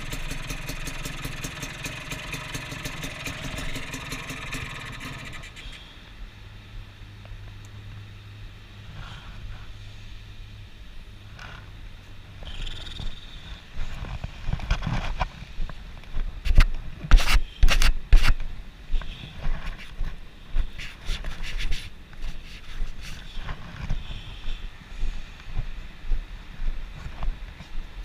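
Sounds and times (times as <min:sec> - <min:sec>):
camera scraping against clothing: 0:13.5 - 0:15.5, 0:16.4 - 0:18.4, 0:19.0 - 0:24.1.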